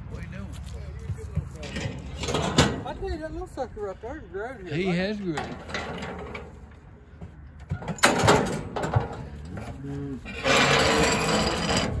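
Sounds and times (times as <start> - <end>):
metal chute clanking: 1.6 - 3.0, 5.4 - 6.5, 7.7 - 9.3, 10.3 - 12.0.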